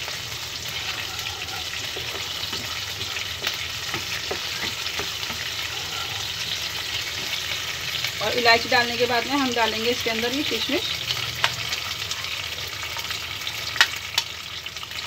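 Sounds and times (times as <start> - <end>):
seeds sizzling in hot fat: 0.0 - 15.0
wooden spatula scraping a pan: 0.6 - 8.0.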